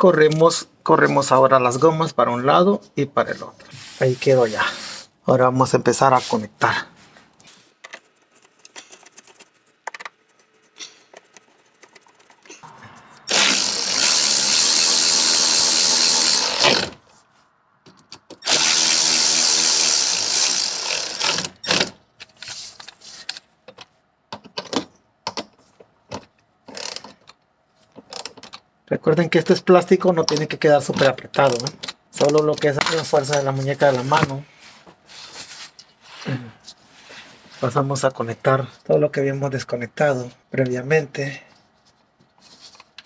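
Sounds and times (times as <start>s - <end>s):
impact driver driving screws: 13.3s - 17.0s, 18.4s - 22.0s.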